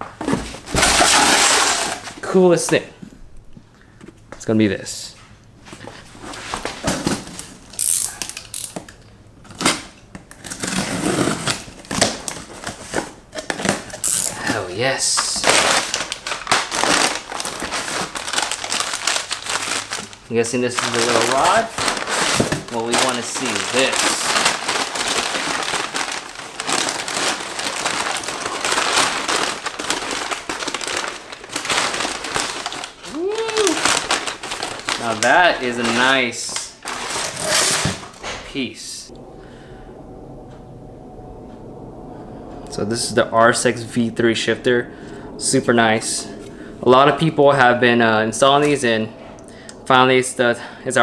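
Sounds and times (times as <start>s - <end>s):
packing paper crumpling: 0.7s - 2.2s, 11.5s - 38.2s
knife cutting packing tape: 13.4s - 14.4s
cardboard box rustling: 20.8s - 33.0s, 33.7s - 36.1s.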